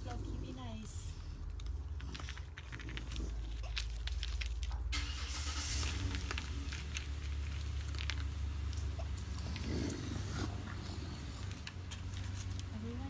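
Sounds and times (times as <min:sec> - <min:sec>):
raccoons scuffling: 0:00.0 - 0:13.0
steady low rumble: 0:00.0 - 0:13.0.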